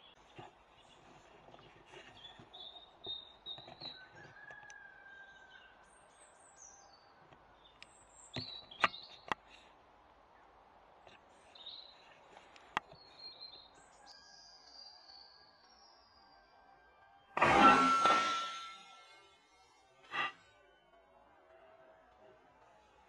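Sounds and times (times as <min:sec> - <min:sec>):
birds singing and chirping: 0:00.0 - 0:04.5, 0:05.4 - 0:09.6, 0:12.8 - 0:16.3.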